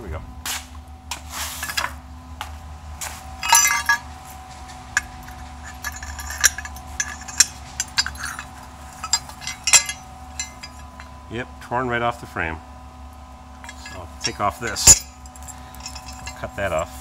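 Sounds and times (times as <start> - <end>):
steady low hum: 0.0 - 17.0
metal parts clinking: 1.6 - 1.9, 3.4 - 11.2, 13.6 - 16.9.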